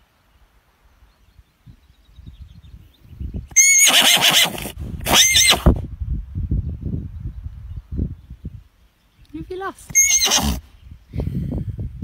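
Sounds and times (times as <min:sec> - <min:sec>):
foal whinnying: 0:03.6 - 0:05.7, 0:10.0 - 0:10.6.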